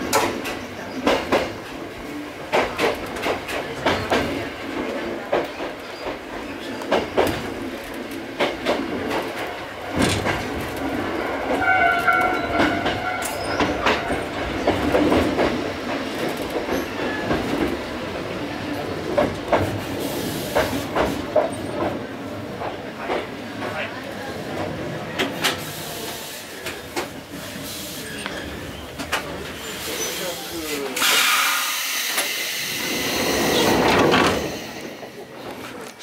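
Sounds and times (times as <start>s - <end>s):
electric railcar running noise: 0.0s - 36.0s
high wheel squeal: 29.6s - 35.0s.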